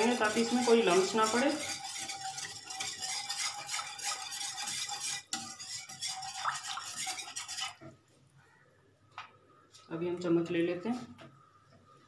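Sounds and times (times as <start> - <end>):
wire whisk scraping a saucepan: 0.0 - 8.0.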